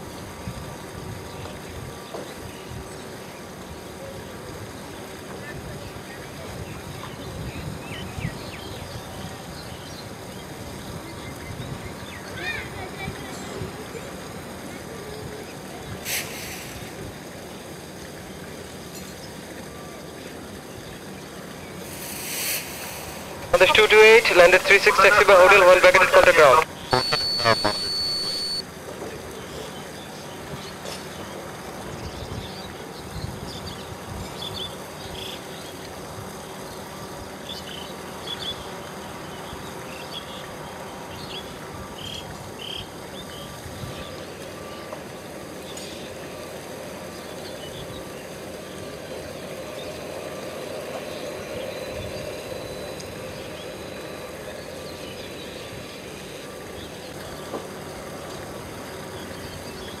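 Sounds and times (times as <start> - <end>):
jet engines idling: 21.8 - 28.6
short high chirps: 26.9 - 28.6.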